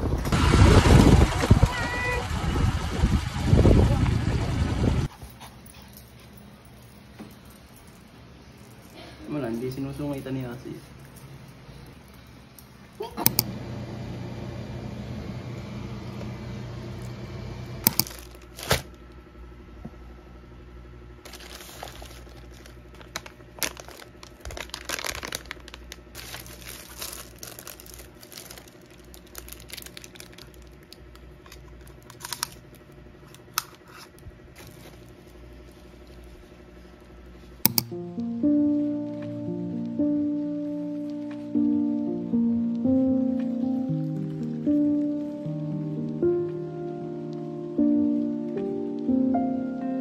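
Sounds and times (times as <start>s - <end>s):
steady low hum: 0.0s - 49.9s
paper and plastic wrap crinkling: 18.0s - 18.9s, 21.2s - 37.1s.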